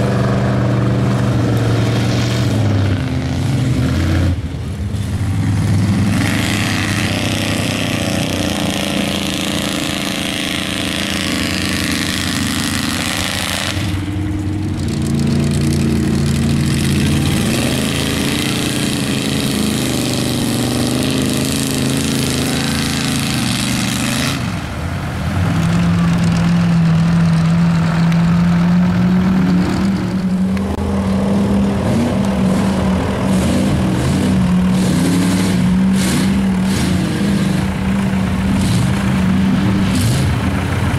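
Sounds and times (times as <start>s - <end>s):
truck engines revving hard: 0.0s - 40.9s
trucks churning through mud: 0.0s - 40.9s.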